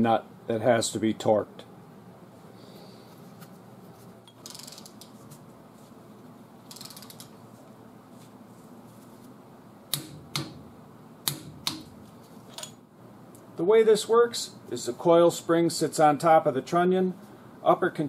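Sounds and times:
torque wrench ratcheting: 4.4s - 5.0s, 6.7s - 7.3s
torque wrench sharp clicks: 4.4s - 5.0s.

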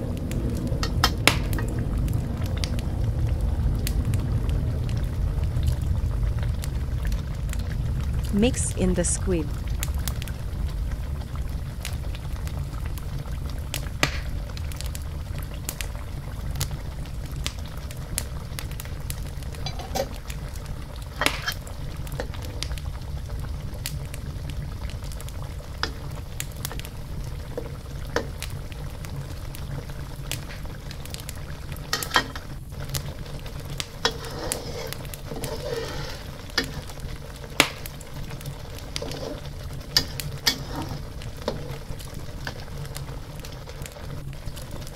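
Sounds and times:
sauce bubbling in a wok: 0.0s - 8.6s, 9.2s - 44.9s
sharp pops: 37.6s - 37.9s.

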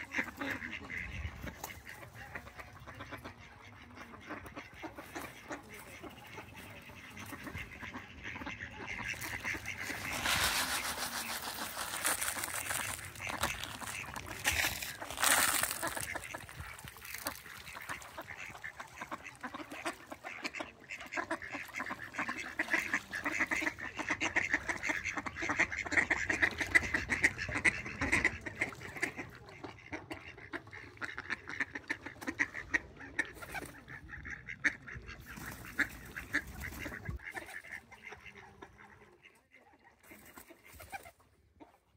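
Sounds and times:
ducks quacking: 0.0s - 41.9s
broadband rushing noise: 9.2s - 14.5s.

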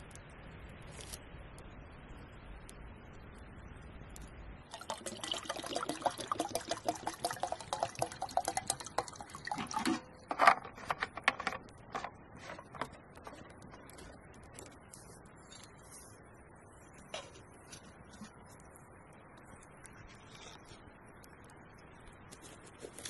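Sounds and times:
water pouring into a metal kettle: 4.7s - 13.7s.

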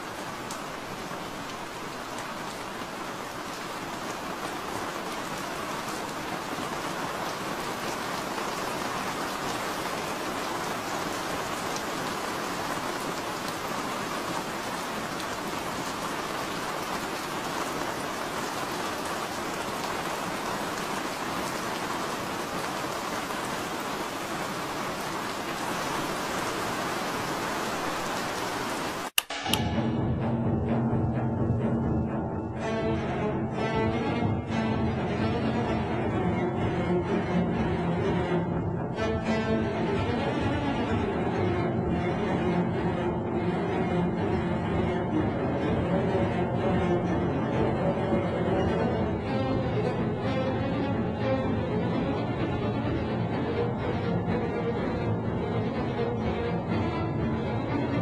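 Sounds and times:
steady rain: 0.0s - 29.8s, 31.6s - 58.0s
sharp click: 29.2s - 29.7s.

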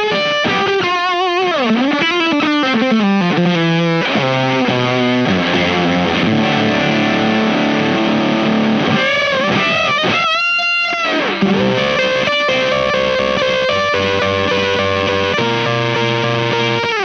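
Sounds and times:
fuzz electric guitar: 0.0s - 17.0s.

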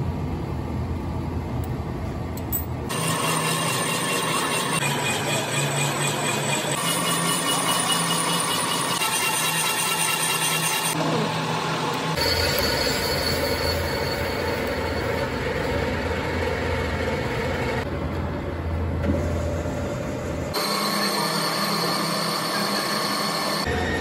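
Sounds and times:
boring machine cutting metal: 2.9s - 16.7s, 20.5s - 24.0s.

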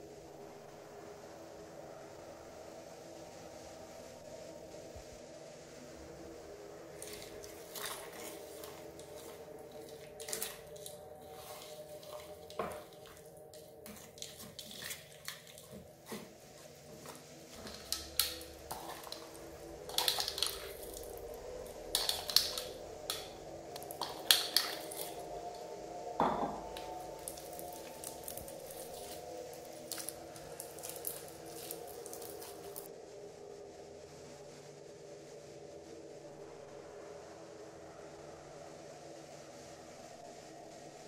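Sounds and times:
hands squishing slime: 7.0s - 16.3s, 17.0s - 25.2s, 26.8s - 32.9s
spoon scraping plastic bowl: 7.0s - 25.2s
spoon stirring sticky slime: 7.0s - 25.6s, 26.7s - 32.9s.

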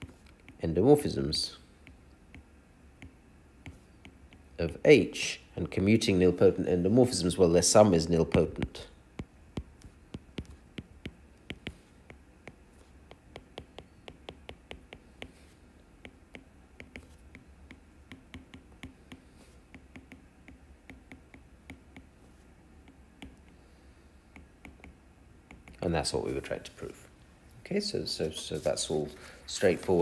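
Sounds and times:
stylus tapping on glass screen: 8.3s - 15.4s, 16.0s - 22.1s, 24.3s - 25.8s.

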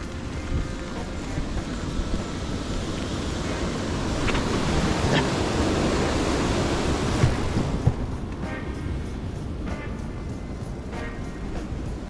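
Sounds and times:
bike tyres rolling on dirt: 0.0s - 8.2s
wind rushing over microphone: 0.0s - 12.0s.

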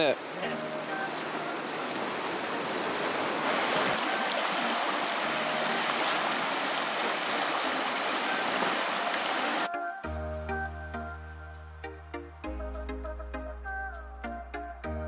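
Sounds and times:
river water rushing: 0.0s - 9.8s.

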